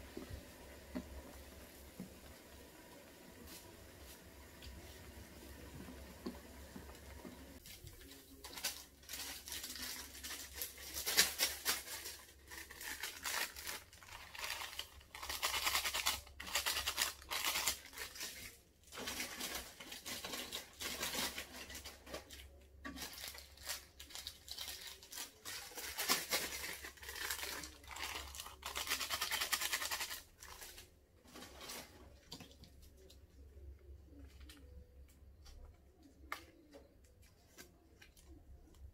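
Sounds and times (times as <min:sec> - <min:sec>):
plastic packets crinkling and tearing: 0:07.6 - 0:32.8.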